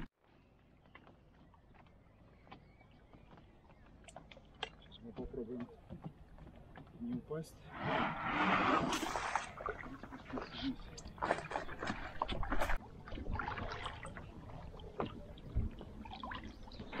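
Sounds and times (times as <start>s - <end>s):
water splashing from paddle: 7.6s - 17.0s.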